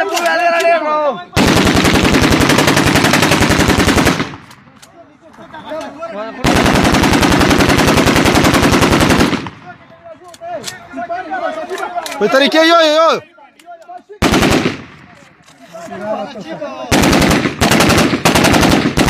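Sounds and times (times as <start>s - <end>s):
faint men's voices: 9.5s - 17.0s
automatic rifle bursts: 16.9s - 19.0s.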